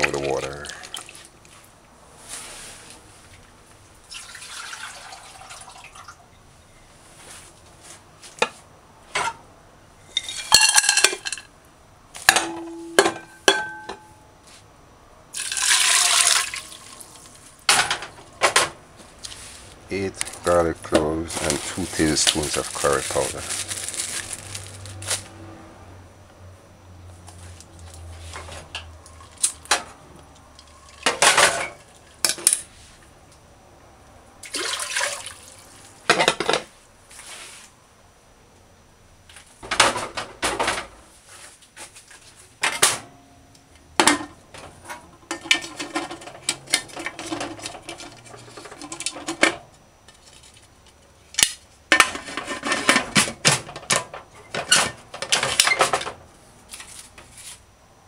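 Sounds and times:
clanks of metal pot: 10.2 - 11.4, 12.3 - 14.1
rustling: 19.0 - 20.5, 21.2 - 25.4.

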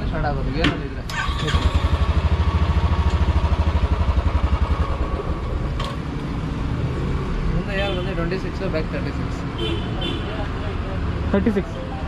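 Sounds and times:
motorcycle engine idling: 1.2 - 5.6.

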